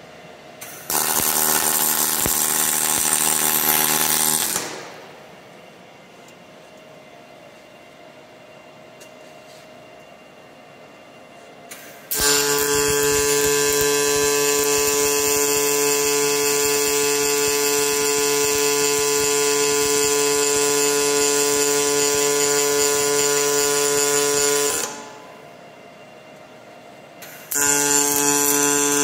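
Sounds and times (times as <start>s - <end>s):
welding arc humming and hissing: 0.6s - 5.5s, 11.7s - 25.5s, 27.2s - 29.0s.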